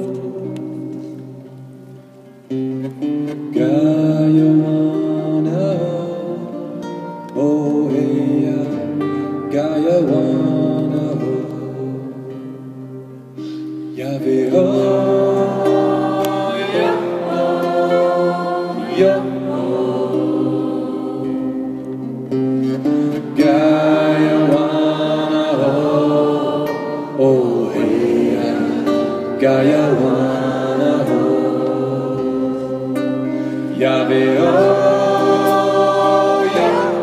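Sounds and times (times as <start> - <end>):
acoustic guitar: 0.0 - 37.0
man singing: 3.5 - 12.5, 13.9 - 20.3, 23.2 - 32.8.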